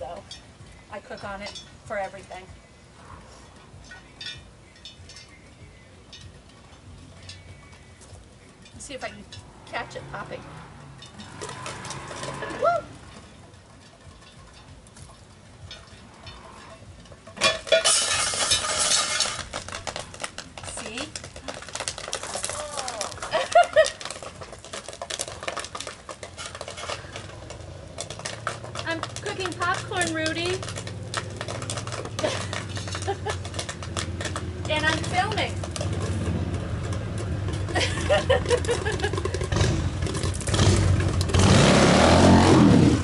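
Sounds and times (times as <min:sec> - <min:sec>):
high-pitched vocal cries: 0:12.4 - 0:13.0
popcorn popping in a skillet: 0:17.2 - 0:41.4
motorcycle engine revving hard: 0:39.4 - 0:43.0.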